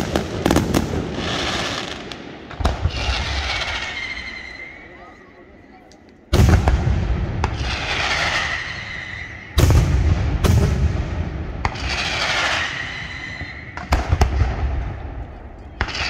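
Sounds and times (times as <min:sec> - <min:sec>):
hissing rumbling firework tail: 0:06.4 - 0:16.0.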